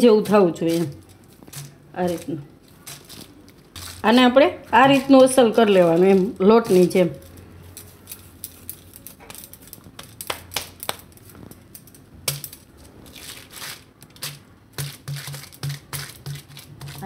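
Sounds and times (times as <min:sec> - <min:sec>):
hands patting dough: 0:00.0 - 0:17.0
plastic sheet crinkling: 0:00.0 - 0:17.0.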